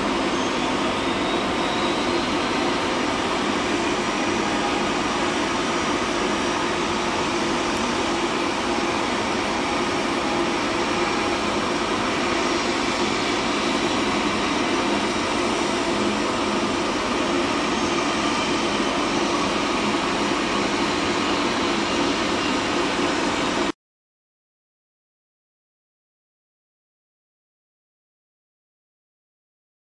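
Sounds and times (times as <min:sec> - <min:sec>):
jet engines taxiing: 0:00.0 - 0:23.8.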